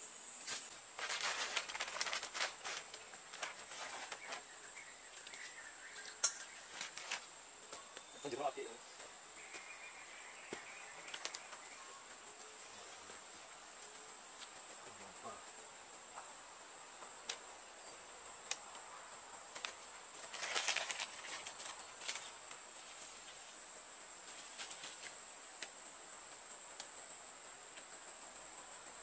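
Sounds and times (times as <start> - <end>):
high-pitched insect drone: 0.0 - 29.0
rustling in leaf litter: 0.4 - 5.7, 6.5 - 7.3, 19.6 - 23.6, 24.2 - 25.2.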